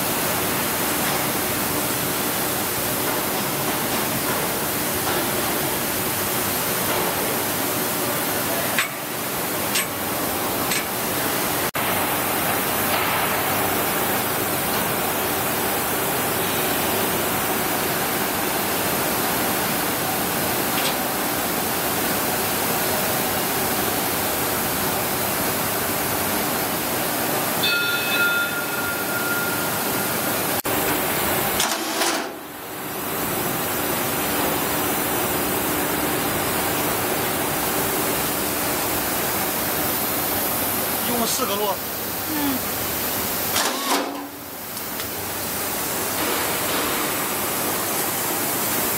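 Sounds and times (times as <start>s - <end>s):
high ringing tone: 27.6s - 30.6s.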